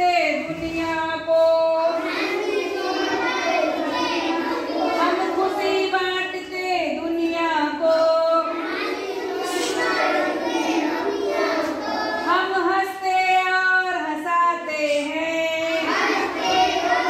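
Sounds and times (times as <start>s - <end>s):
children singing in unison: 1.8s - 5.9s, 7.9s - 12.7s, 14.9s - 17.0s.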